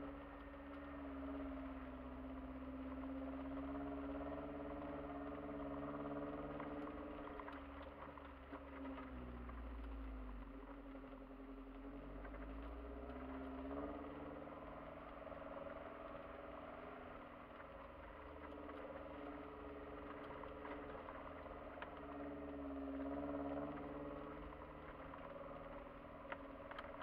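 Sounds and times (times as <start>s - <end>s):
car engine running: 0.0s - 27.0s
faint clicks: 15.0s - 27.0s.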